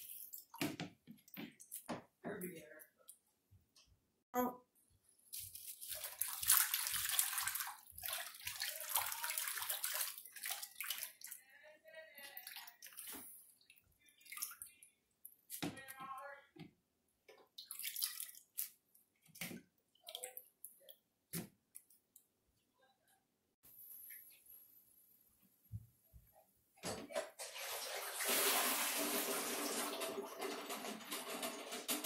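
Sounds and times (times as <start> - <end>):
water dripping: 0.0 - 3.2, 5.3 - 11.4, 12.2 - 16.0, 17.3 - 21.1
hands swishing leaves in water: 5.3 - 11.4.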